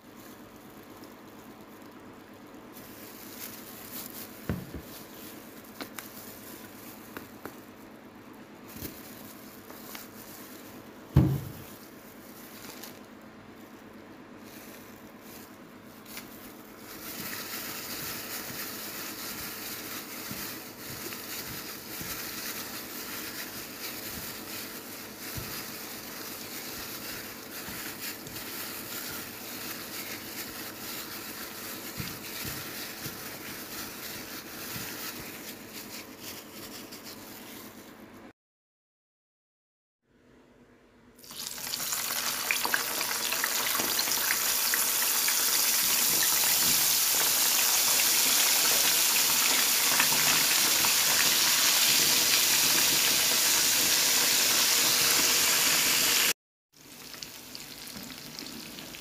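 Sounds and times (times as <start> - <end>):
wet squelching of hand mixing: 14.4 - 37.6.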